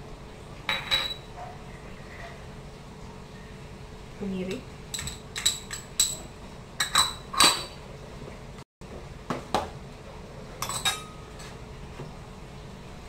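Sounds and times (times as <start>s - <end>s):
metal spoon clinking on bowls: 0.7s - 1.3s, 4.9s - 7.8s, 10.6s - 11.4s.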